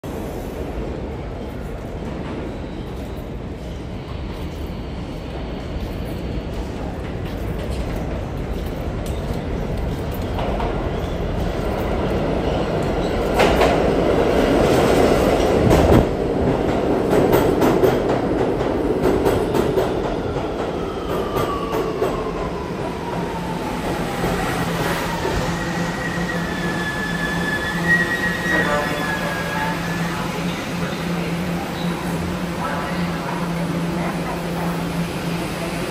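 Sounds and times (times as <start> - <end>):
train braking whine: 20.9 - 31.2
high brake squeal: 25.2 - 30.3.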